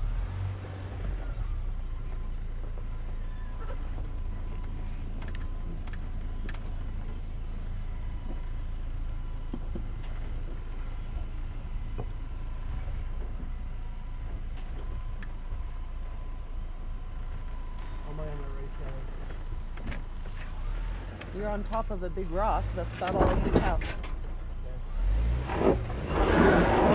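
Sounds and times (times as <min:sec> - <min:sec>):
pickup engine running low: 0:00.0 - 0:26.9.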